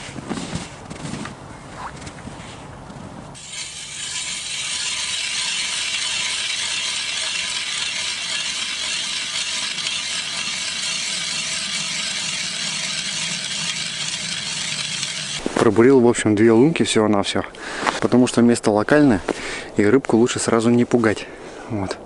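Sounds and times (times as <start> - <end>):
ice auger scraping through ice: 3.4 - 15.6.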